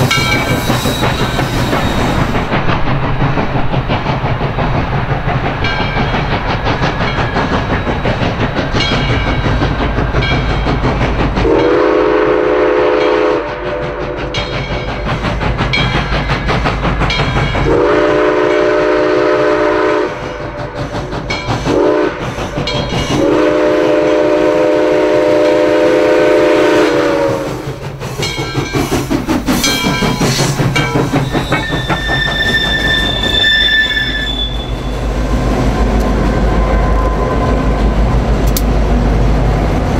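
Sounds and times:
steam locomotive exhaust chuffs: 0.0s - 39.9s
high squeal: 0.1s - 2.3s, 30.3s - 35.2s
train chime whistle: 31.2s - 35.1s.

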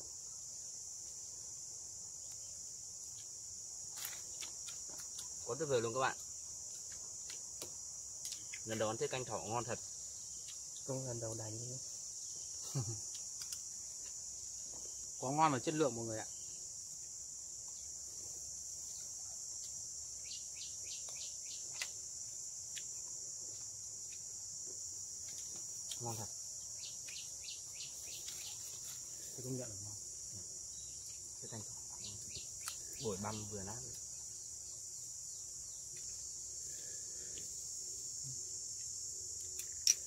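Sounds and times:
high-pitched insect drone: 0.0s - 40.0s
sharp click: 39.6s - 40.0s.

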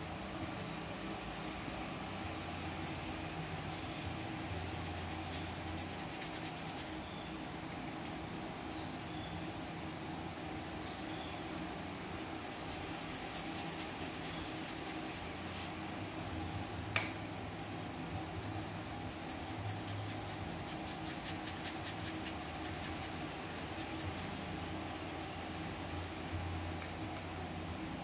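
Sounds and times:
background hum: 0.0s - 28.0s
paintbrush scratching on cardboard: 2.5s - 7.0s, 12.4s - 15.8s, 18.8s - 24.9s
sharp click: 7.7s - 8.2s.

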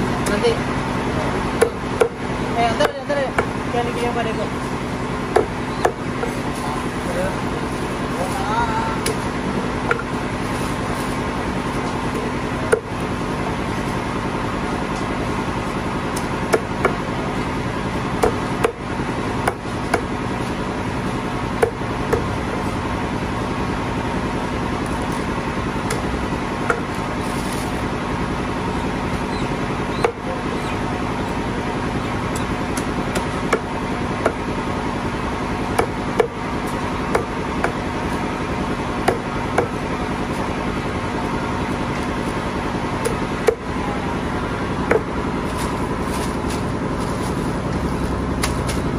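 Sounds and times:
machine-like drone: 0.0s - 48.9s
cleaver chopping on wooden block: 1.6s - 2.2s, 2.8s - 3.5s, 5.3s - 6.0s, 9.9s - 10.1s, 12.1s - 12.9s, 16.2s - 17.0s, 18.2s - 18.8s, 19.4s - 20.1s, 21.6s - 22.3s, 25.9s - 26.9s, 30.0s - 30.3s, 32.3s - 34.4s, 35.8s - 37.8s, 39.0s - 39.8s, 43.0s - 43.7s, 44.9s - 45.1s.

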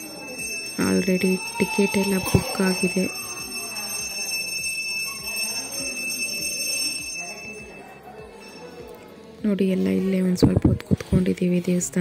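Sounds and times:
high-pitched ringing tone: 0.0s - 8.9s
faint busy background: 0.0s - 12.0s.

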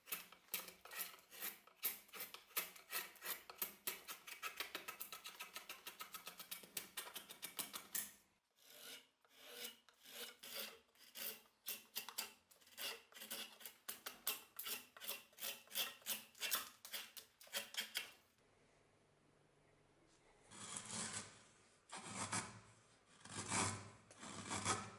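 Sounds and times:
drawknife shaving wood: 0.0s - 18.2s, 23.2s - 24.9s.

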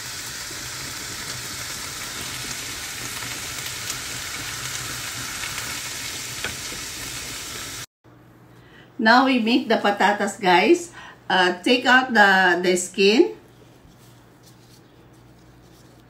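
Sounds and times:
meat sizzling in a frying pan: 0.0s - 7.9s.

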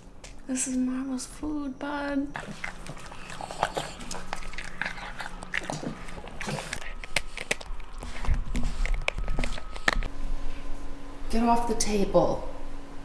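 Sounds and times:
dog crunching food: 2.3s - 10.1s.

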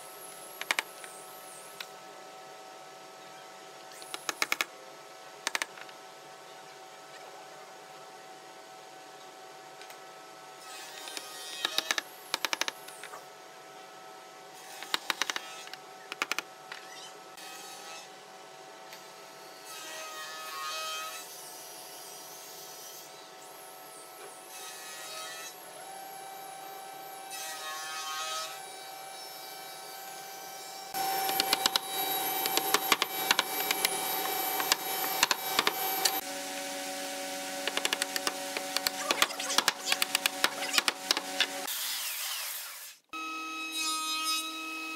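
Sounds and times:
power tool whining: 30.9s - 41.7s
taps and clicks on wood: 34.6s - 36.2s.

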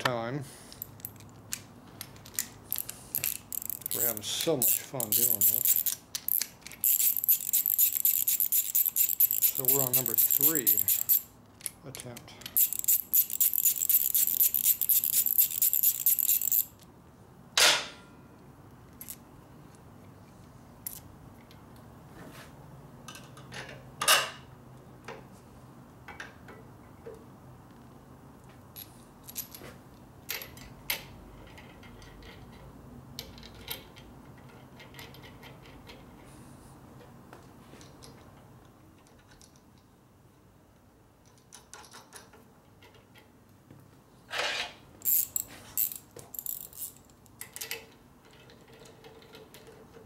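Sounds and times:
metal tools rattling: 2.1s - 11.3s, 12.0s - 16.8s, 45.0s - 49.8s
metal clinks: 2.8s - 11.3s, 12.5s - 16.8s.

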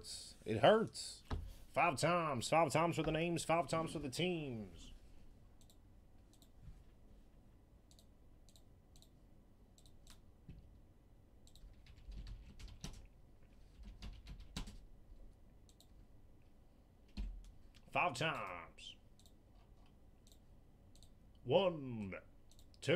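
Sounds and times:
keyboard typing and clicking: 11.4s - 13.1s, 13.7s - 14.8s, 15.7s - 15.9s, 20.2s - 21.1s.

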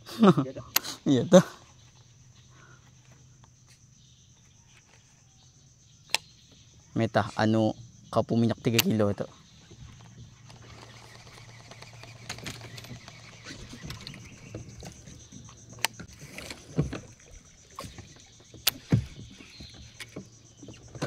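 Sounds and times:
sharp clicks: 8.6s - 9.0s, 10.0s - 16.1s.

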